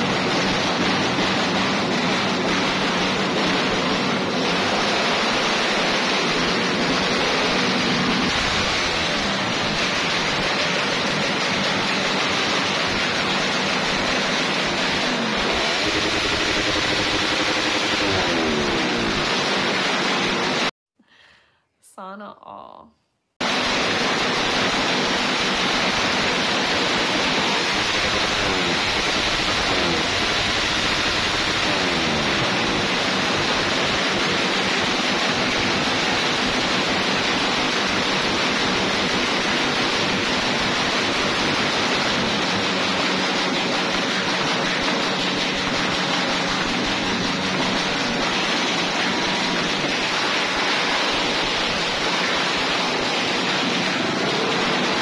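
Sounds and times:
motorcycle exhaust revving loudly: 0:00.0 - 0:20.7, 0:23.4 - 0:55.0.

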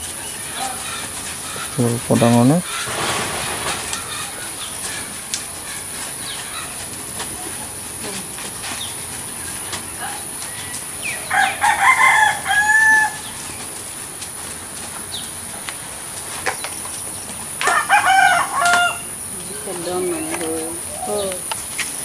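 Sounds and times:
rooster crowing: 0:11.0 - 0:13.4, 0:17.6 - 0:19.2.

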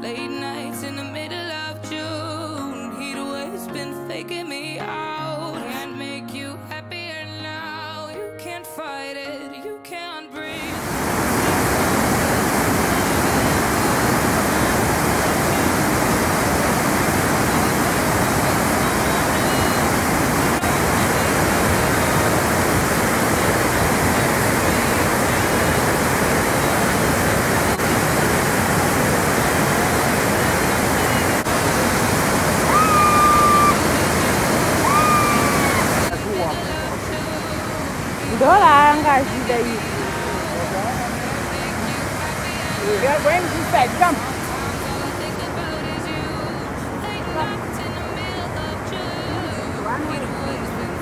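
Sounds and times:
waterfall rushing over rocks: 0:10.6 - 0:51.0
whistle-like notes: 0:32.7 - 0:33.8, 0:34.8 - 0:35.9.

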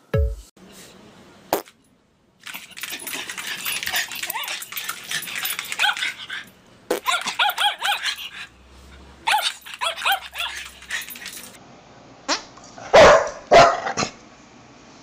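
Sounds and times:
small dog yapping: 0:05.5 - 0:08.5, 0:09.2 - 0:11.2.

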